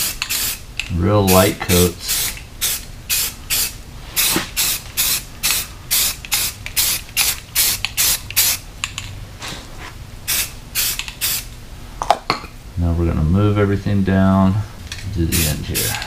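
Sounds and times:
spray-paint can hissing bursts: 0.0 - 0.6, 2.1 - 8.6, 10.3 - 11.5, 15.3 - 16.0.

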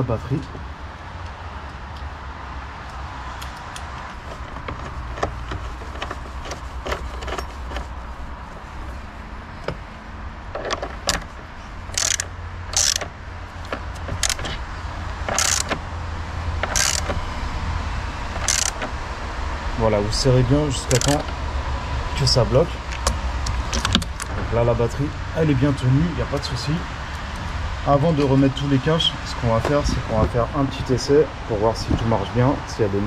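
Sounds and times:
ratchet wrench clicking: 11.9 - 13.1, 13.9 - 14.6, 15.2 - 15.8, 16.6 - 17.2, 18.4 - 18.9, 20.9 - 21.3.

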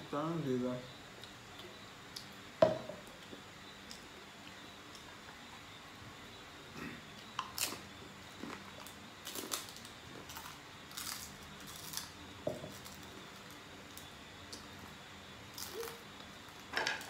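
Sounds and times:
people eating crunchily: 6.7 - 16.8.

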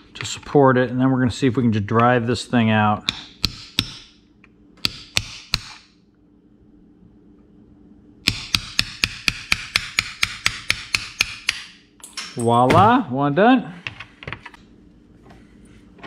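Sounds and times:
hammer striking steel punch: 3.1 - 4.2, 4.8 - 5.9, 8.2 - 13.0.

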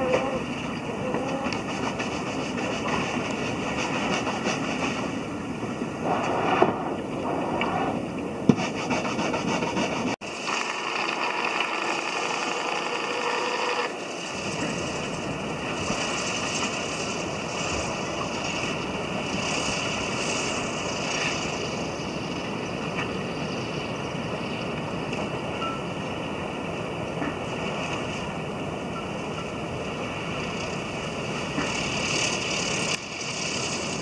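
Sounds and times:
wind rushing: 1.8 - 10.2
surf breaking: 14.0 - 23.2.

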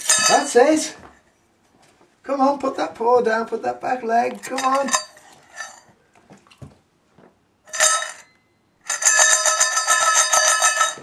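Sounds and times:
metal jingling when shaken: 8.9 - 11.0.

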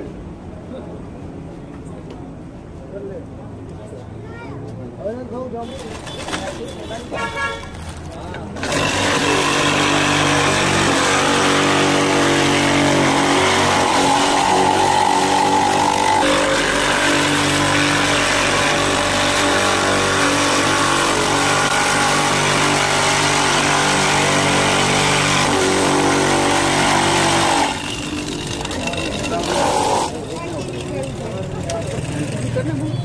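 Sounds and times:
electric ice-shaving machine running: 8.6 - 32.5.

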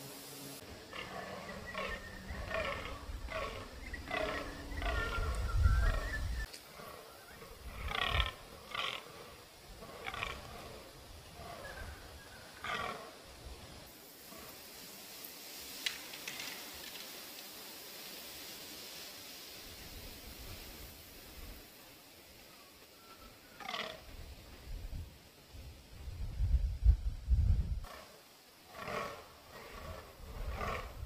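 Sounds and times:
deer groaning calls: 0.9 - 12.0, 23.5 - 24.2.

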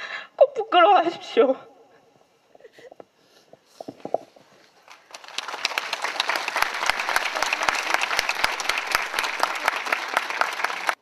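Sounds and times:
crowd applauding: 4.8 - 11.0.

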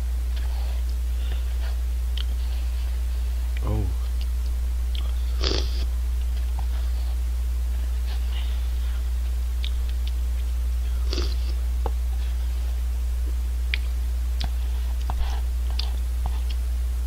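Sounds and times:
low electrical hum: 0.0 - 17.0
person chewing: 0.3 - 2.5, 3.5 - 7.0, 8.0 - 12.5, 13.7 - 16.6.

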